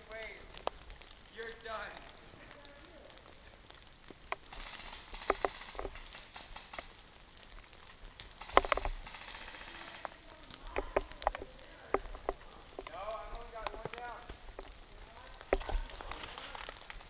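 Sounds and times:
sharp clicks and knocks of gear: 0:04.2 - 0:07.0, 0:07.6 - 0:13.0.

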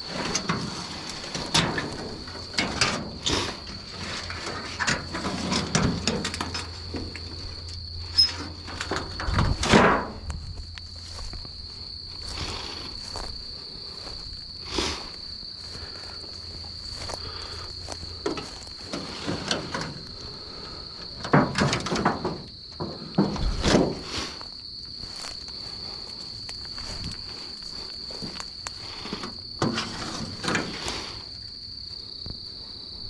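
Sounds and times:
footsteps through tall grass: 0:10.2 - 0:19.3, 0:23.4 - 0:29.2.

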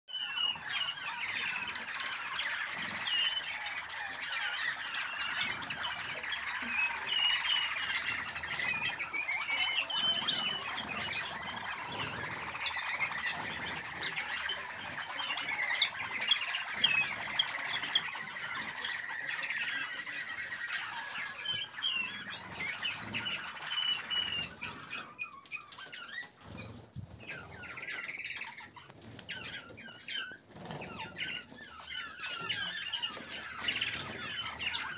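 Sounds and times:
canaries chirping and trilling: 0:00.1 - 0:34.9.

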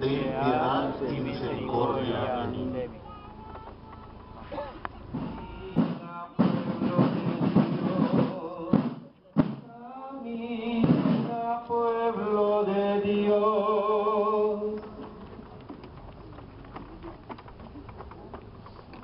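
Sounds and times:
drum-like strikes: 0:05.1 - 0:09.7, 0:10.8 - 0:11.5.

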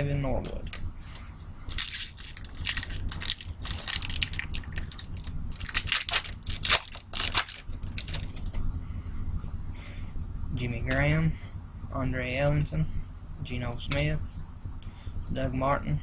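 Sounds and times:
wrapper tearing and crinkling: 0:01.7 - 0:08.4.

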